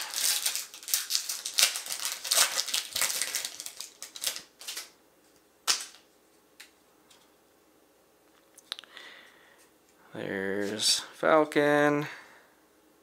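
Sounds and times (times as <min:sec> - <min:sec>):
trading cards snapping and rustling: 0:00.0 - 0:04.9, 0:05.6 - 0:06.0.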